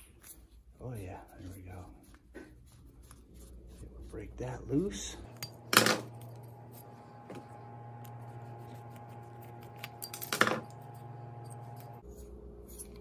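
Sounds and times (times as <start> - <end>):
screwdriver clinking on metal: 9.6 - 13.0.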